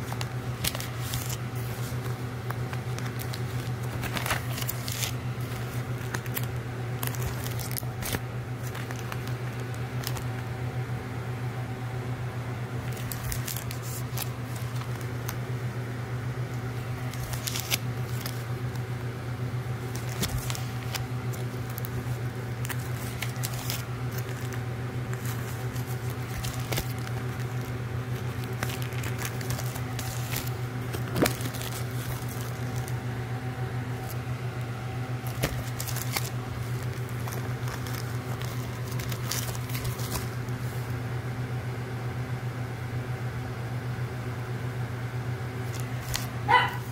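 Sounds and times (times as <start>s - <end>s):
plastic sleeves crinkling and clicking: 0.0s - 10.5s, 12.8s - 15.5s, 16.6s - 19.0s, 19.7s - 33.2s, 33.8s - 41.0s, 45.6s - 46.9s
steady low hum: 0.0s - 46.9s.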